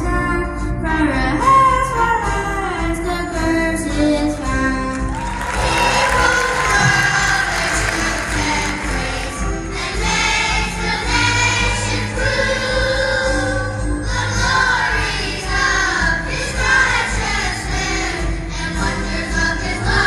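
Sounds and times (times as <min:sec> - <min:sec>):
amplified instrumental backing: 0:04.6 - 0:12.3
children's choir singing: 0:05.3 - 0:20.0.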